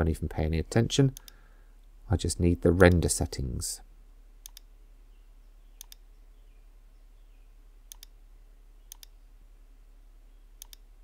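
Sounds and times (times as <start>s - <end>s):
faint low hum: 0.0s - 11.0s
computer mouse clicks: 4.4s - 4.7s, 5.8s - 6.0s, 7.9s - 8.2s, 8.9s - 9.2s, 10.6s - 10.9s.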